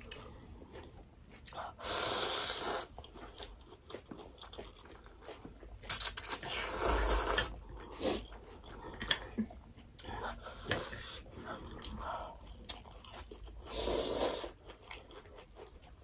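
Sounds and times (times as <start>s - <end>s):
soft chewing: 0.0s - 16.0s
noodles being slurped: 1.7s - 3.6s, 5.9s - 8.4s, 12.6s - 14.6s.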